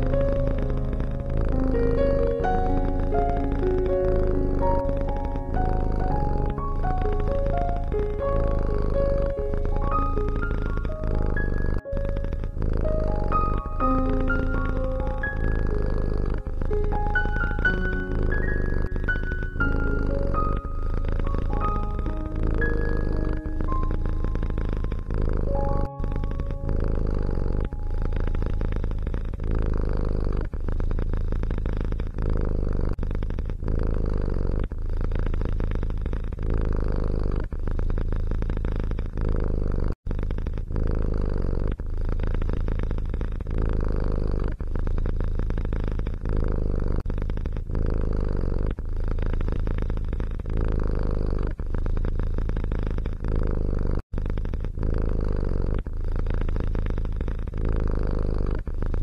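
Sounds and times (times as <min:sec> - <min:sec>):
cat purring: 0:00.0 - 0:59.0.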